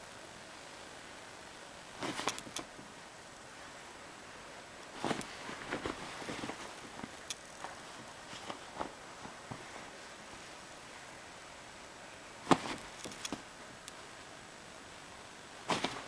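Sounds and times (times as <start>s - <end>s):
pillowcase rustling and scuffling: 2.0s - 2.6s, 4.9s - 10.0s, 12.5s - 13.4s, 15.7s - 16.0s
sharp clicks: 2.2s - 2.7s.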